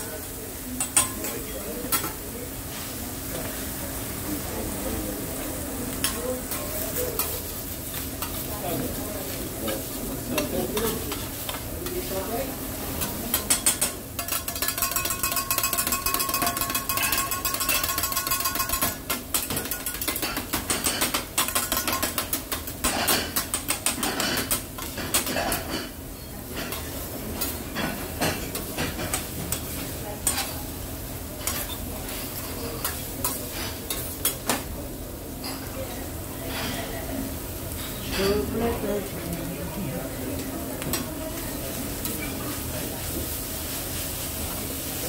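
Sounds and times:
food sizzling: 0.0s - 45.0s
metal spatulas clacking on griddle: 0.8s - 2.2s, 10.3s - 11.6s, 13.0s - 25.9s, 26.6s - 30.6s, 31.4s - 34.6s.

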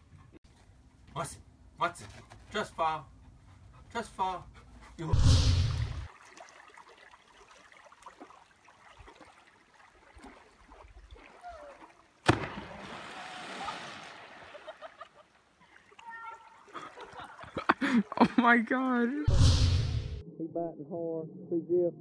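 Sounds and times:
body slapping water surface: 5.7s - 18.4s.

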